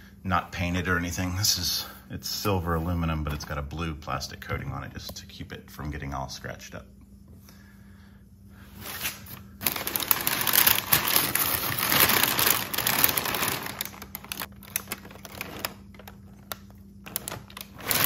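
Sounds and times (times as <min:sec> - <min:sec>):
packing paper crinkling: 0:08.9 - 0:18.0.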